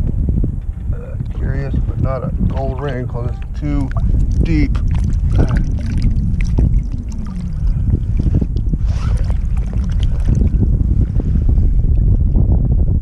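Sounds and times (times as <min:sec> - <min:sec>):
wind buffeting microphone: 0:00.0 - 0:13.0
water sloshing and splashing: 0:03.4 - 0:11.3.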